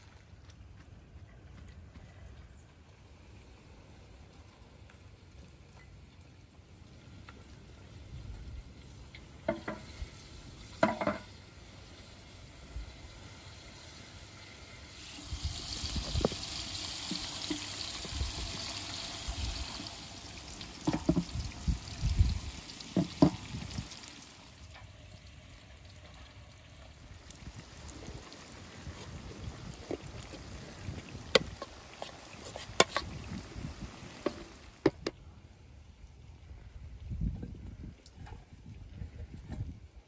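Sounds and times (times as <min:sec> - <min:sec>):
hot oil sizzling in a pot: 0:06.8 - 0:34.8
pot and tray knocking: 0:10.8 - 0:11.2.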